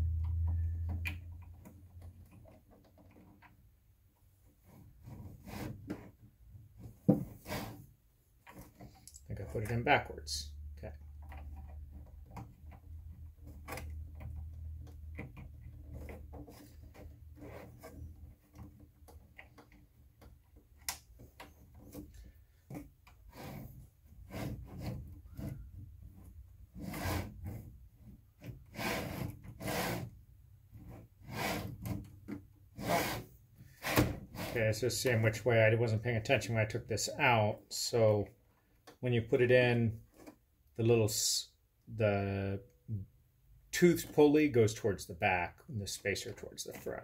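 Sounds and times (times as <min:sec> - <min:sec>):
low hum: 0:00.0 - 0:01.6.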